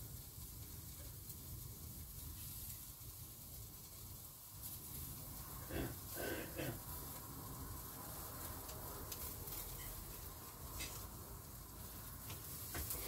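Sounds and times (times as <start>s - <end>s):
meat sizzling on a grill: 0.0s - 13.0s.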